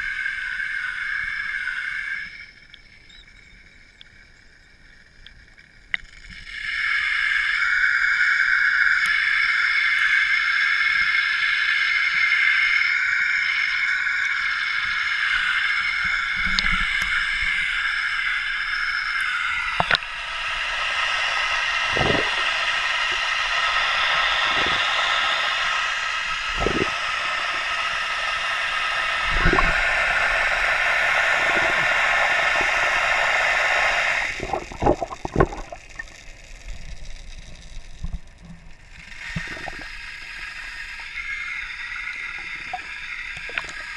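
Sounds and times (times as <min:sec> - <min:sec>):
water rushing and sloshing: 0:19.2 - 0:36.1.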